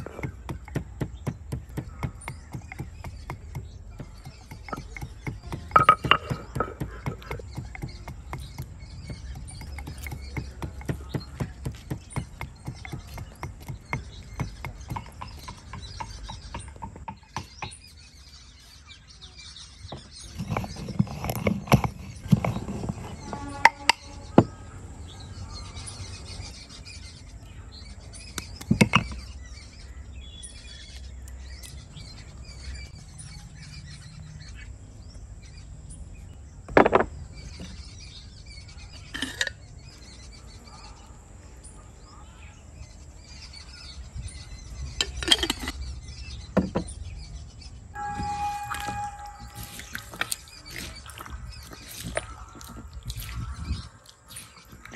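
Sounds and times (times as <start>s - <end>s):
grinding on a stone slab: 0.0s - 16.9s, 20.1s - 24.5s, 48.0s - 52.2s
wooden pestle knocking in mortar: 0.0s - 17.8s.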